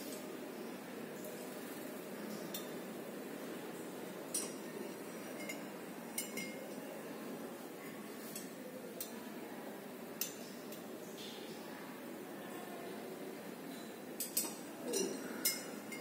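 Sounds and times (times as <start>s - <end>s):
low background hum: 0.0s - 16.0s
glassware clinking: 4.3s - 6.7s, 14.2s - 16.0s.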